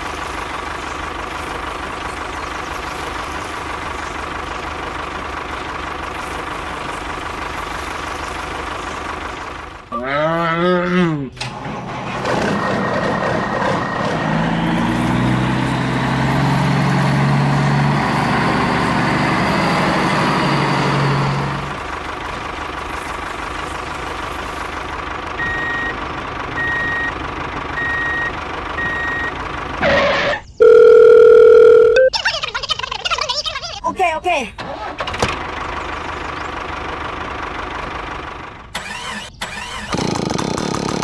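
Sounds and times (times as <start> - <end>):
tractor engine running: 0.0 - 10.2, 11.3 - 41.0
wavering voice-like grumble: 9.9 - 11.4
reversing beeps: 25.4 - 26.0, 26.6 - 27.2, 27.8 - 32.1
phone ringtone: 29.9 - 32.2.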